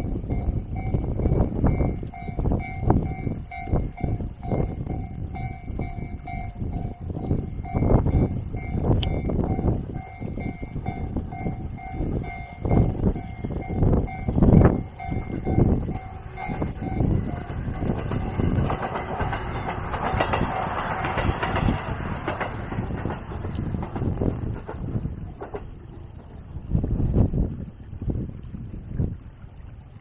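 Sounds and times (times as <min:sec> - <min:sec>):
diesel railcar passing: 0:00.0 - 0:28.0
wind on microphone: 0:00.0 - 0:30.0
level-crossing warning bell: 0:00.2 - 0:22.1.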